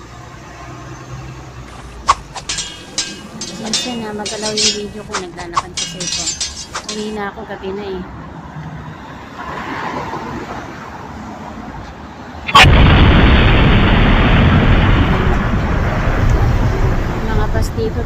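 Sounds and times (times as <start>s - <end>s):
bus passing with loud rushing: 0.0s - 2.4s, 7.2s - 12.9s
street traffic: 0.0s - 18.0s.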